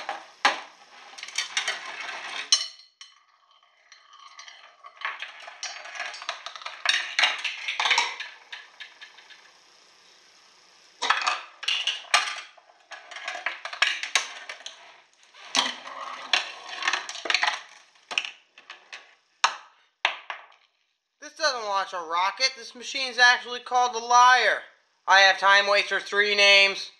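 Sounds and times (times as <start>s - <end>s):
small balls rolling: 0.0s - 10.3s, 10.9s - 20.9s.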